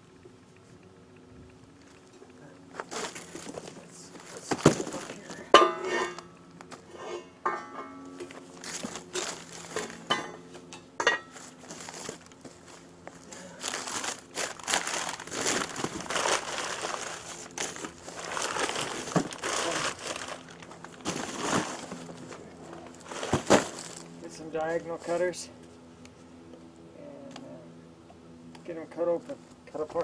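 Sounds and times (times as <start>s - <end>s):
newspaper rustling and crinkling: 2.8s - 5.4s, 8.6s - 10.0s, 11.4s - 22.4s.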